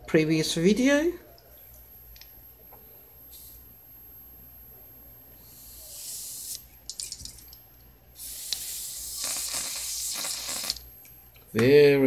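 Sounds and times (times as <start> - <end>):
aerosol can spraying hiss: 8.2 - 10.8.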